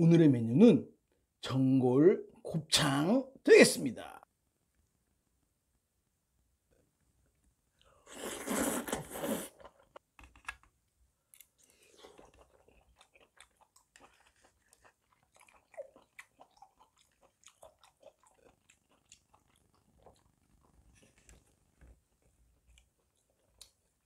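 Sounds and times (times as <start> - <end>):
slurping noodles: 8.0 - 9.8
close chewing with mouth clicks: 11.4 - 21.6, 22.2 - 24.0.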